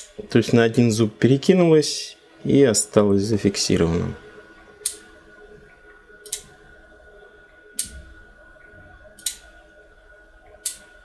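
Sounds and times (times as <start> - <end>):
stepping switch clicking: 6.2 - 6.5, 9.2 - 9.5, 10.6 - 10.9.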